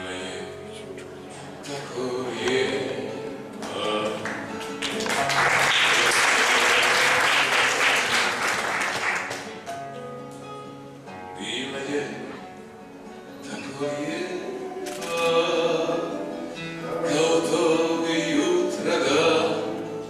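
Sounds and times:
classical guitar playing: 0:00.0 - 0:20.0
audience applause: 0:03.9 - 0:09.6.

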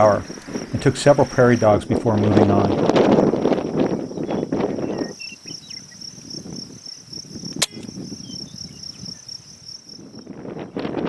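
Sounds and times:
insects chirping: 0:00.0 - 0:11.0
wind noise on microphone: 0:00.0 - 0:11.0
air rifle shot: 0:07.6 - 0:08.0.

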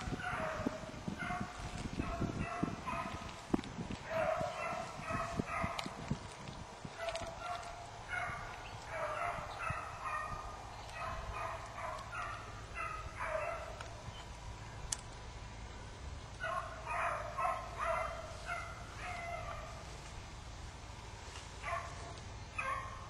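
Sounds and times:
hounds baying: 0:00.0 - 0:03.4, 0:04.0 - 0:06.1, 0:06.8 - 0:14.3, 0:16.4 - 0:20.0, 0:21.6 - 0:23.0.

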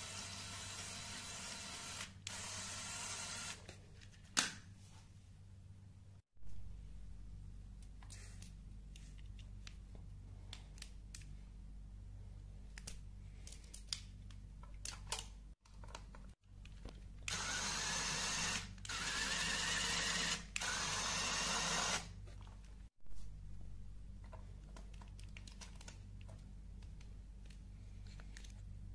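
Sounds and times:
small electric motor whirring: 0:00.0 - 0:03.6, 0:17.3 - 0:22.1.

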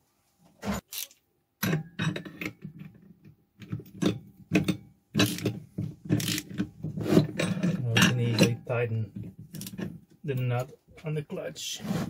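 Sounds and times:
ratchet clicking on metal: 0:05.2 - 0:05.5, 0:06.2 - 0:06.6.

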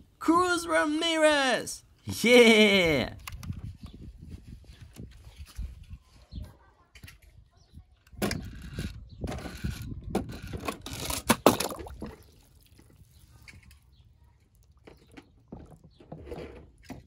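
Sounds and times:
toy truck clattering on plastic track: 0:08.3 - 0:11.5.

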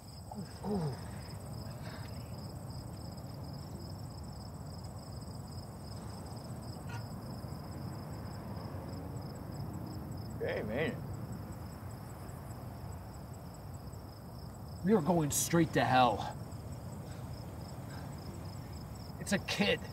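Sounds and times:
crickets chirping: 0:00.0 - 0:19.9
falling vocal grunt: 0:00.3 - 0:01.2.

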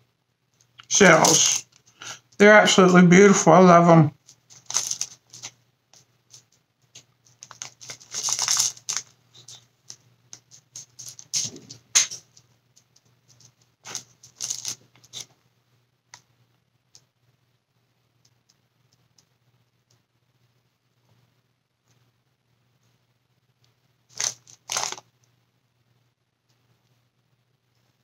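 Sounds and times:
plastic bag rustling: 0:04.2 - 0:05.6, 0:07.2 - 0:09.6, 0:10.5 - 0:12.3, 0:13.8 - 0:15.3, 0:24.1 - 0:25.1.

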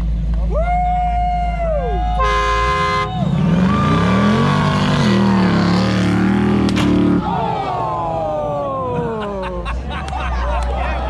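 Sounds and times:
horn note: 0:02.2 - 0:03.1
truck engine revving under load: 0:02.2 - 0:07.8.

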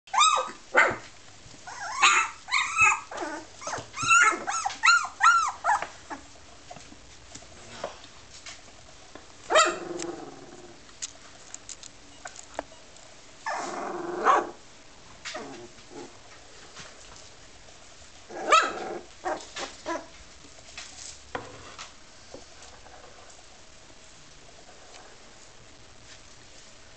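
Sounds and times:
puppies yipping and barking: 0:00.1 - 0:01.0, 0:01.6 - 0:06.3.

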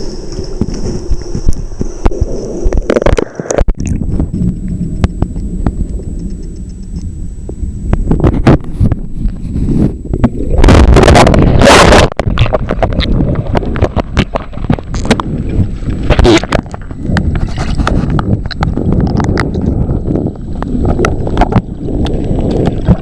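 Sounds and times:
underwater rumbling and sloshing: 0:00.0 - 0:23.0
underwater knocks and clicks: 0:00.3 - 0:07.1, 0:07.9 - 0:23.0
rush of bubbles: 0:09.7 - 0:15.3.

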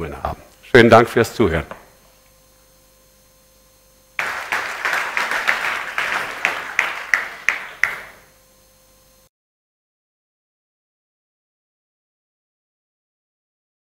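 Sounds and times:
faint electrical hum: 0:00.0 - 0:09.3
loud single claps: 0:04.2 - 0:08.2
audience applauding: 0:04.2 - 0:08.3.

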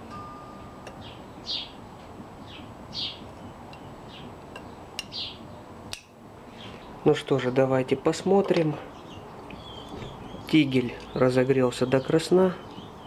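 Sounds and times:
small bird chirping: 0:00.9 - 0:01.8, 0:02.4 - 0:05.7, 0:08.8 - 0:13.0.

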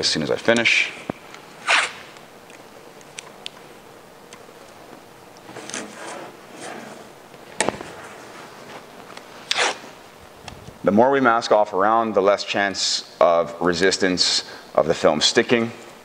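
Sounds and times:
tape peeling off roll: 0:01.6 - 0:02.2, 0:08.8 - 0:10.0.

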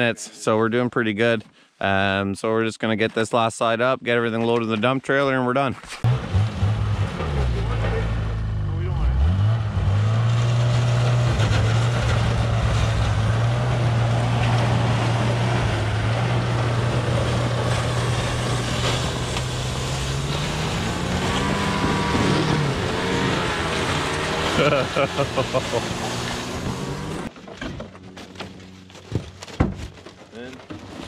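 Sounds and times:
chainsaw running at high revs: 0:17.0 - 0:27.3.

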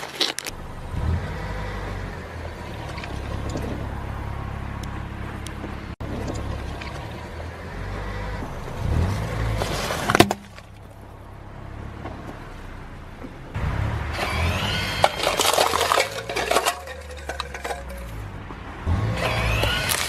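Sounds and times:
plastic toys crushing and crackling: 0:00.0 - 0:00.5, 0:14.2 - 0:18.2, 0:19.2 - 0:20.0
low engine hum: 0:00.5 - 0:20.0.

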